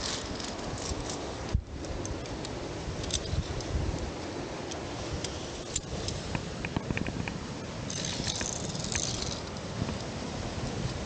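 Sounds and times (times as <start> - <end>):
steady rushing noise: 0.0 - 11.0
carabiners clicking and jingling: 7.9 - 9.6.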